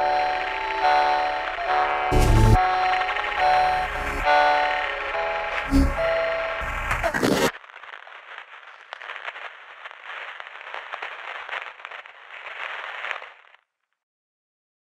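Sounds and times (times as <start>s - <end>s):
music: 0.0s - 7.0s
crackling static: 0.0s - 14.0s.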